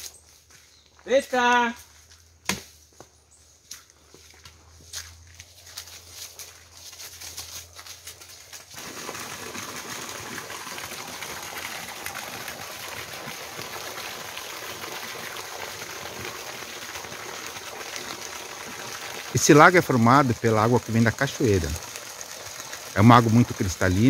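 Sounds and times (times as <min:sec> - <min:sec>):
footsteps on dirt trail: 0:00.0 - 0:08.8
water splashing into pond: 0:08.0 - 0:24.0.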